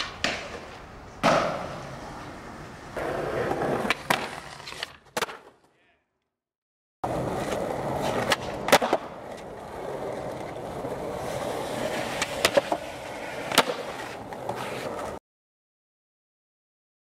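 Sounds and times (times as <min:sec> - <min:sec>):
skateboard clacks: 0:00.0 - 0:02.4, 0:03.0 - 0:05.6, 0:07.0 - 0:15.2
skateboard wheels rolling on concrete: 0:00.0 - 0:05.7, 0:07.0 - 0:15.2.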